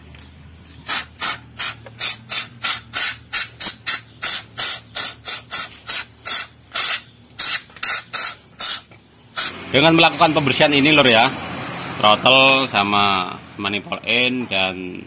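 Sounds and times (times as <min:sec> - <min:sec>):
aerosol spray hissing bursts: 0:00.9 - 0:08.8, 0:09.4 - 0:09.6.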